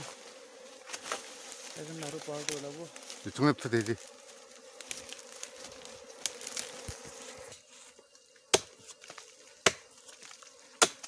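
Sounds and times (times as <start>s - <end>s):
bees buzzing: 0.0s - 11.0s
machete chopping into trunk: 8.5s - 9.9s, 10.8s - 11.0s.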